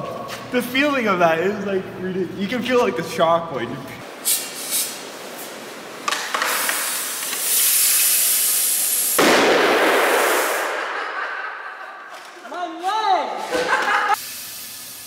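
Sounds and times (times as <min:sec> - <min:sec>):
compressed air hissing: 0:04.1 - 0:05.6, 0:06.2 - 0:09.4, 0:14.1 - 0:15.0
air rushing out of hose: 0:04.2 - 0:05.5, 0:06.4 - 0:11.0
plastic bottle bursting with a bang: 0:09.2 - 0:10.7.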